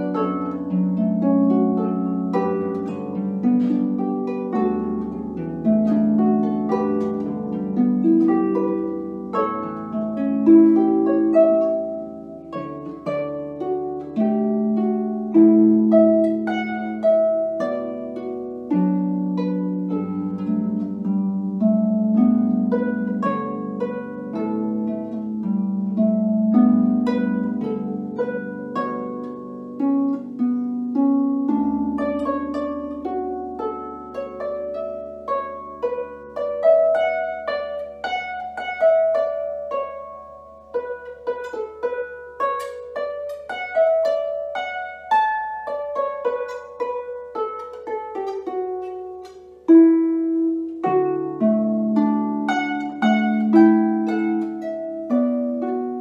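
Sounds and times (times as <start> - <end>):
harp playing solo: 0.0 - 56.0.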